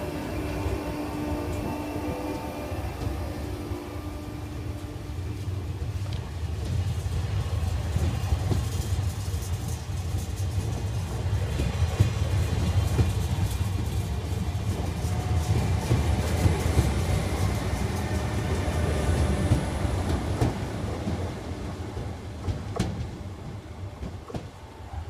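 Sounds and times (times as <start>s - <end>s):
train wheels rumbling on rails: 0.0s - 25.0s
wheels clicking over rail joints: 5.6s - 25.0s.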